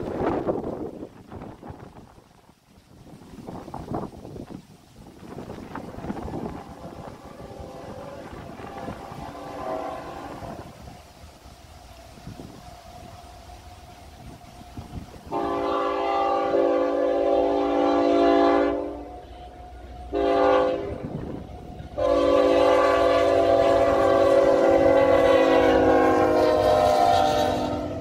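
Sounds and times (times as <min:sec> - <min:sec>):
train rumble: 0:00.0 - 0:28.0
locomotive air horn blasts: 0:06.4 - 0:10.8, 0:15.3 - 0:28.0.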